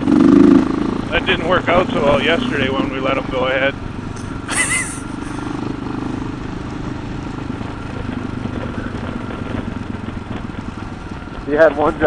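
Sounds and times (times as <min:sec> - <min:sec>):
motorcycle engine running: 0:00.0 - 0:12.0
wind noise on helmet: 0:05.4 - 0:12.0.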